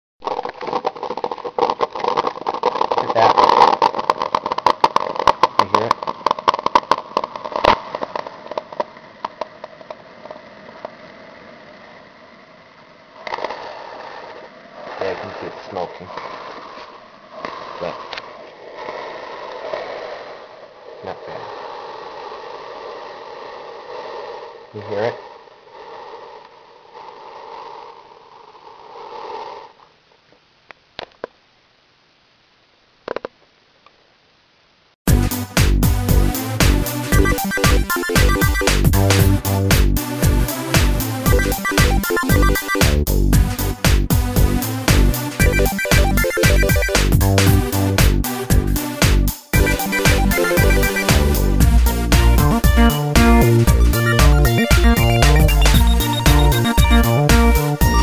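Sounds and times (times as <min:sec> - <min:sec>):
coffee maker sputtering and popping: 0:00.2 - 0:08.9
faint steady hiss: 0:00.2 - 0:35.0
steady hum: 0:49.6 - 0:58.0.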